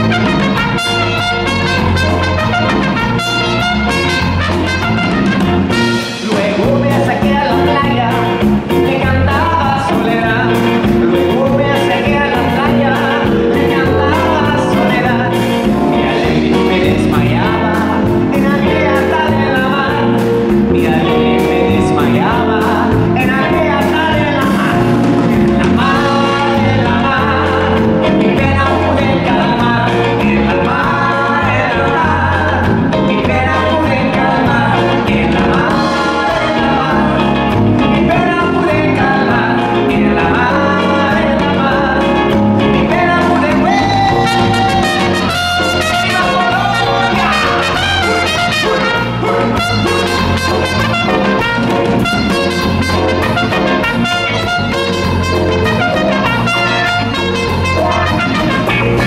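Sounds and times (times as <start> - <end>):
trumpet: 0.0 - 6.8, 43.7 - 59.0
acoustic guitar: 0.0 - 59.0
drums: 0.0 - 59.0
electric bass: 0.0 - 59.0
man singing lead vocal: 0.0 - 59.0.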